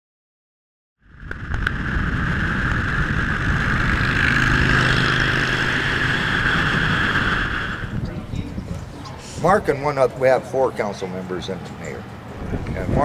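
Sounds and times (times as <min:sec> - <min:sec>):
motorcycle engine drone: 0:01.0 - 0:09.7
rushing wind: 0:01.0 - 0:10.2, 0:12.0 - 0:13.0
road noise: 0:01.0 - 0:13.0.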